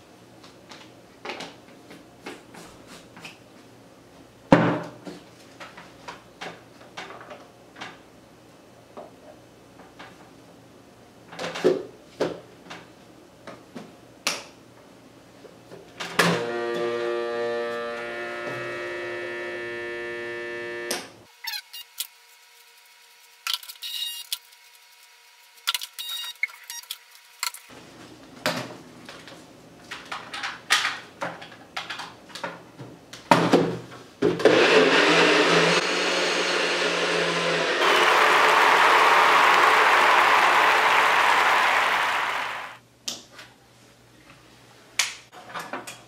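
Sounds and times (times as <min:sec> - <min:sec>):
blender motor whine: 0:16.2 - 0:21.1, 0:34.4 - 0:42.8.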